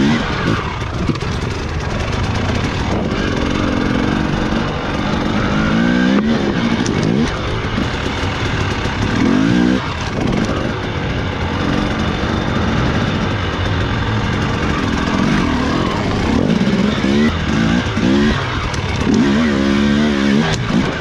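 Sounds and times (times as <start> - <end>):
dirt bike engine revving: 0.0 - 21.0.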